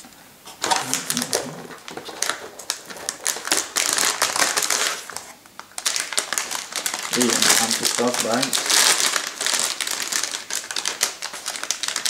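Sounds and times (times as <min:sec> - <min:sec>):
plastic bag crinkling: 0:00.6 - 0:12.0.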